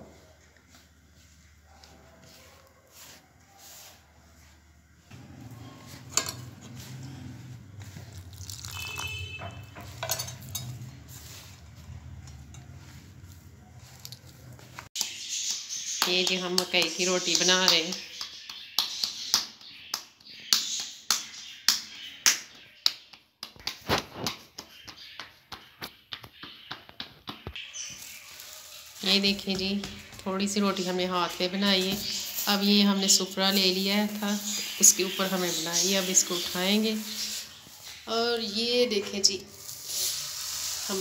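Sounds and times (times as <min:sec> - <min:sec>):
dough rustling and squishing: 0:00.0 - 0:41.0.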